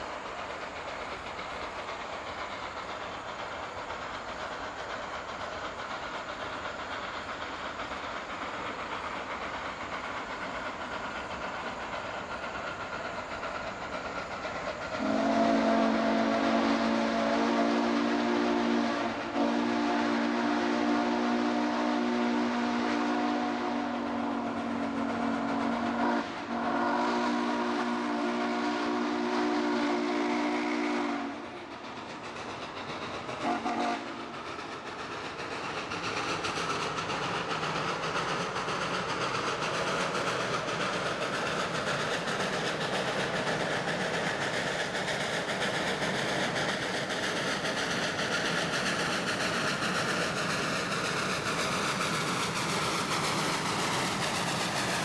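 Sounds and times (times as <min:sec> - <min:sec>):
train rumbling: 0:00.0 - 0:55.0
steam locomotive whistle: 0:15.0 - 0:31.5, 0:33.4 - 0:34.3.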